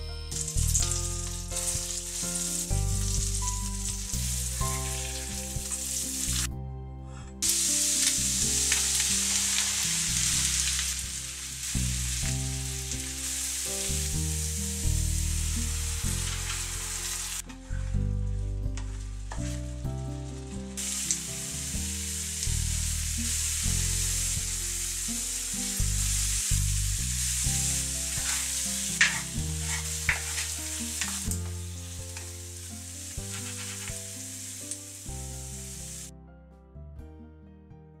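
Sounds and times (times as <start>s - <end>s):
background music: 0.0s - 38.0s
mushrooms sizzling in pan: 0.3s - 6.5s, 7.4s - 17.5s, 19.4s - 36.1s.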